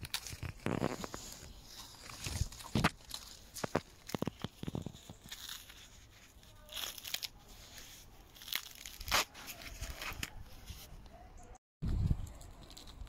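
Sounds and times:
corn husks tearing and rustling: 0.0s - 10.9s, 11.8s - 13.0s
husk snapping: 8.3s - 10.4s.

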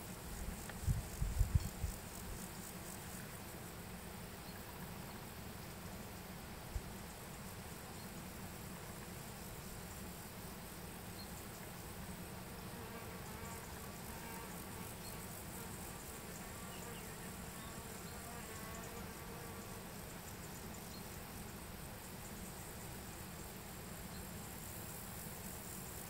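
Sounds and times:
insects chirping: 0.0s - 26.0s
flying insect buzzing: 11.2s - 26.0s.

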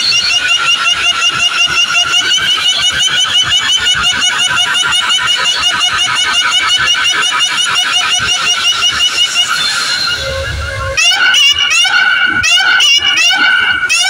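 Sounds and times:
high-pitched electronic effect: 8.0s - 13.6s
fast low pulses: 8.1s - 13.9s.

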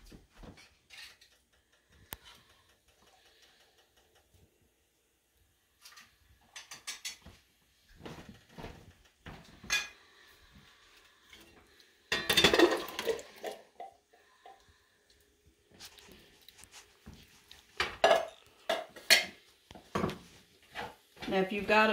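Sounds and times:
metal cans clanking: 12.1s - 13.9s.

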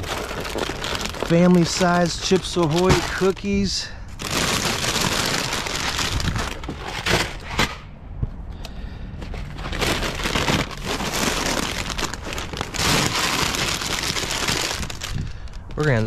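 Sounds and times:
plastic snack bags crinkling: 0.0s - 7.5s, 9.4s - 16.0s.

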